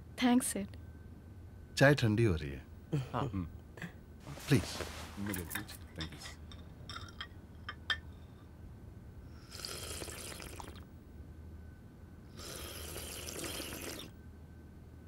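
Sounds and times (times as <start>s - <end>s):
tea slurping: 9.5s - 10.8s, 12.4s - 14.1s.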